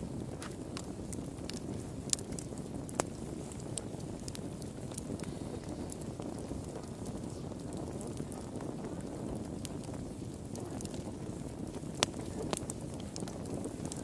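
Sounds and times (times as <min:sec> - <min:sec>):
wood fire crackling: 0:00.0 - 0:14.0
sharp pops of fire: 0:00.2 - 0:14.0.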